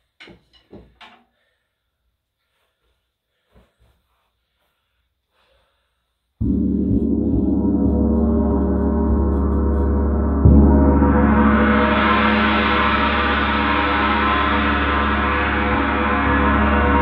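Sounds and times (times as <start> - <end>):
gong struck with soft mallet: 6.4 - 17.0.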